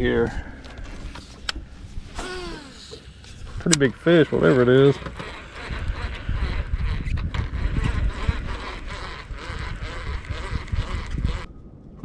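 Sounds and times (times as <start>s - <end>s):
water lapping against boat hull: 2.8s - 12.0s
wind buffeting microphone: 3.4s - 12.0s.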